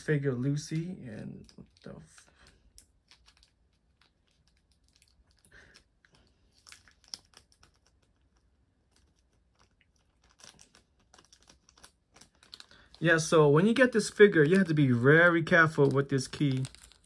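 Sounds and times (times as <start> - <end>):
faint small clicks and crackles: 0.7 - 13.0, 15.6 - 17.0.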